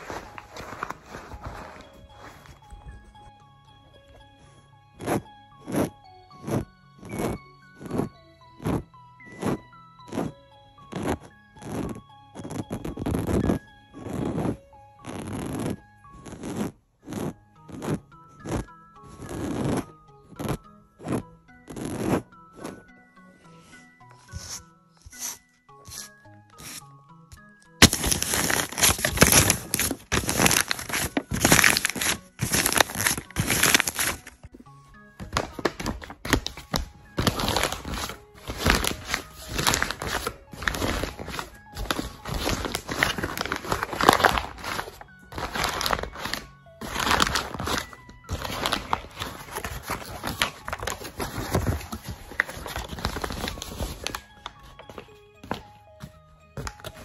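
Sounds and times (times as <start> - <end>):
hand rubbing paper: 0.0 - 3.0, 24.2 - 26.8, 27.8 - 34.4, 35.2 - 55.0
paper crumpling: 0.0 - 3.0, 24.3 - 26.8, 27.8 - 34.5, 35.2 - 55.6
simple melody: 0.0 - 57.0.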